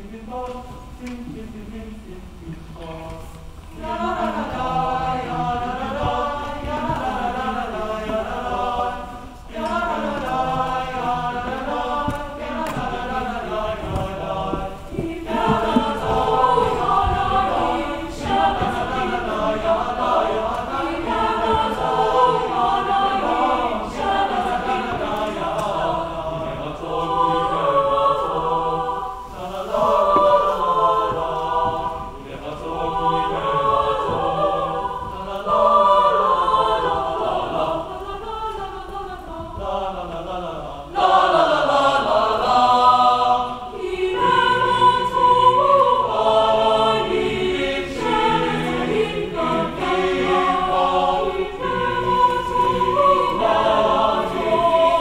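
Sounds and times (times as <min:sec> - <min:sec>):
mixed choir singing: 0:00.0 - 0:55.0.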